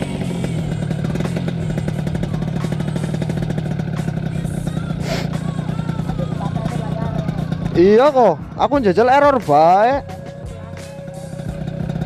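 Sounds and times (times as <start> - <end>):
two-stroke motorcycle engine running: 0.0 - 12.0
brief hiss: 5.0 - 5.4.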